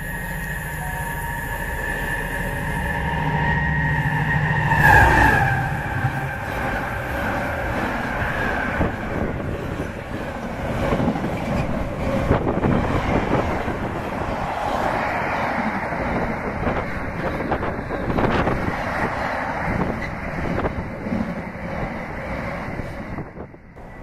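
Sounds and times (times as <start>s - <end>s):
train wheels rumbling on rails: 0.0s - 24.0s.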